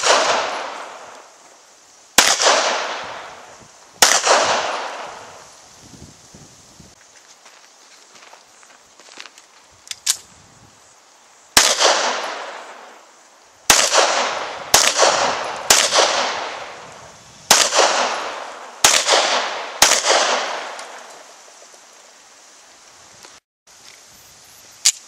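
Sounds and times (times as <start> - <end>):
handgun shots echoing: 0.0 - 1.2, 2.2 - 3.3, 4.0 - 5.2, 11.6 - 12.6, 13.7 - 16.8, 17.5 - 21.1.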